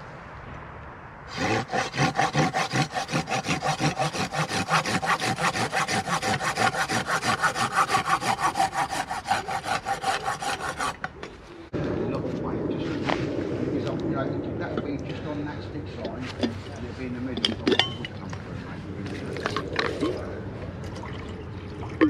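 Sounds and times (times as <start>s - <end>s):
hand saw cutting wood: 1.3s - 11.2s.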